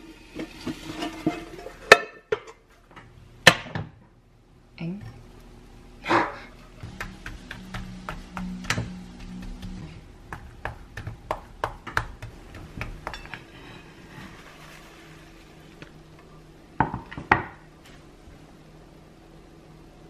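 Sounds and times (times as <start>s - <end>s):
utensils clinking against dishes: 13.1s - 13.8s.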